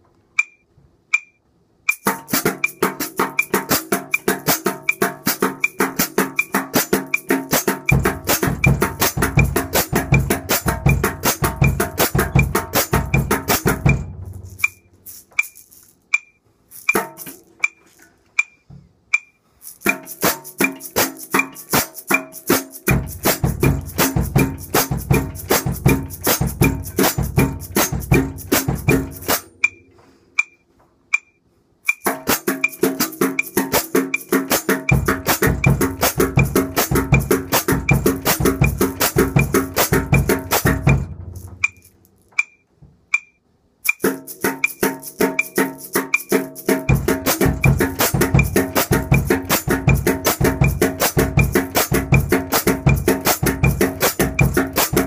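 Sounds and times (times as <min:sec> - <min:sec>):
shaker sticks on snare drum: 0:00.0 - 0:55.0
steady high click: 0:00.4 - 0:08.7, 0:13.8 - 0:22.9, 0:29.2 - 0:34.4, 0:41.4 - 0:46.6.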